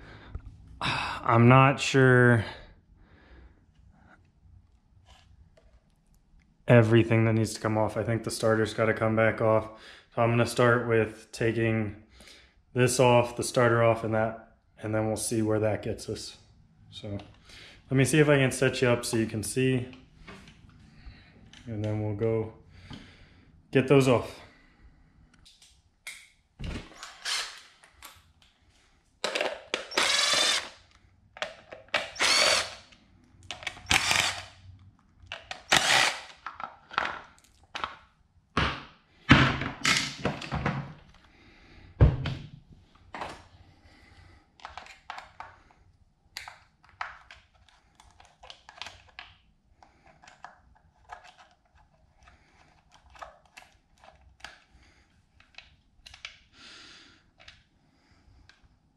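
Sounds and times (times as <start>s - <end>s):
power drill running in bursts: 29.9s - 30.7s, 32.2s - 32.8s, 33.9s - 34.5s, 35.7s - 36.3s.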